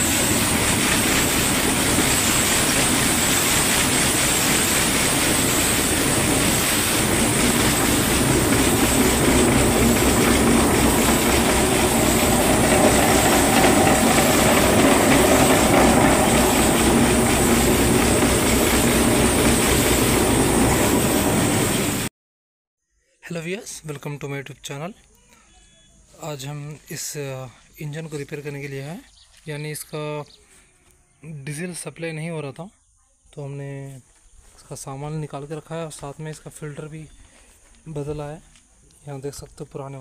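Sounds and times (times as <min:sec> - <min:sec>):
diesel engine running: 0:00.0 - 0:22.1.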